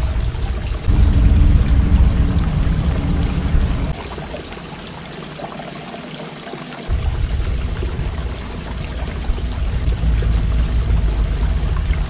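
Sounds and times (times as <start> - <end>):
fountain water trickling and splashing: 0.0 - 12.0
low rumble: 0.8 - 4.1, 6.9 - 12.0.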